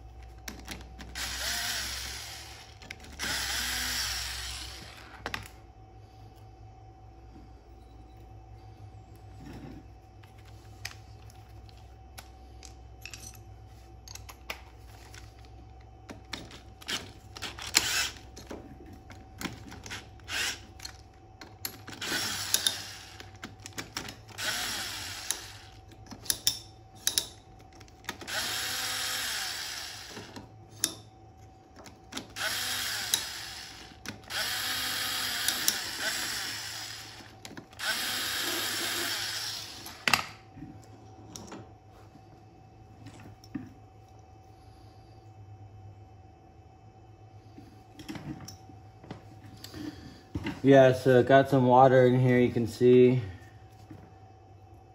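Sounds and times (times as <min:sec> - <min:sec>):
cordless drill running: 0:01.2 - 0:05.2, 0:16.8 - 0:18.2, 0:19.9 - 0:20.7, 0:22.0 - 0:23.3, 0:24.3 - 0:25.8, 0:28.2 - 0:30.4, 0:32.2 - 0:40.1
tools and parts clattering: 0:12.5 - 0:15.5, 0:25.8 - 0:28.3.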